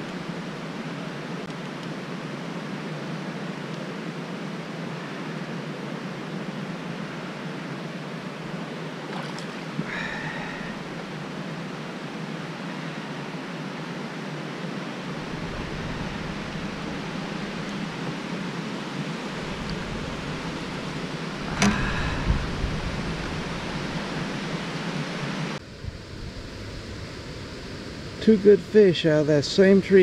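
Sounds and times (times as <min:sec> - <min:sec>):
wind on microphone: 0:15.2 - 0:18.4, 0:19.1 - 0:28.2.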